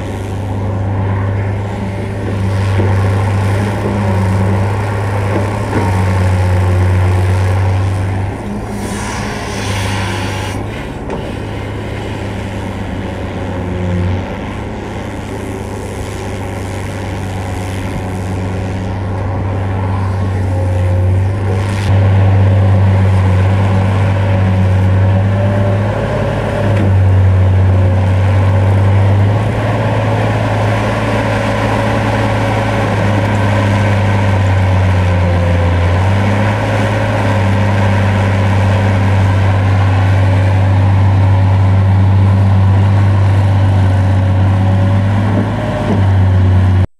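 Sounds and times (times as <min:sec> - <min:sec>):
excavator diesel engine droning: 0:00.0 - 0:46.9.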